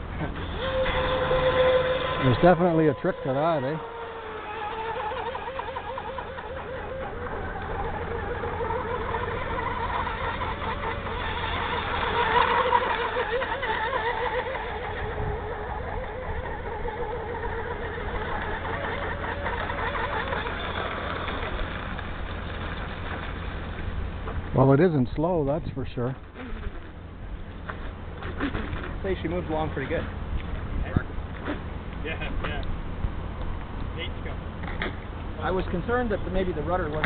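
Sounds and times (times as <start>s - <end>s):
electric motor whine: 0.0s - 24.5s.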